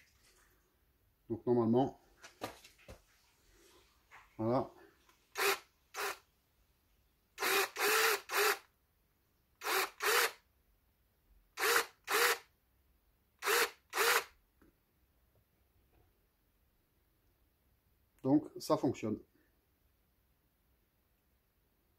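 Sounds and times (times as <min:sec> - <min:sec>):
cordless drill spinning: 0:05.3 - 0:06.2, 0:07.4 - 0:08.7, 0:09.6 - 0:10.4, 0:11.6 - 0:12.5, 0:13.4 - 0:14.4.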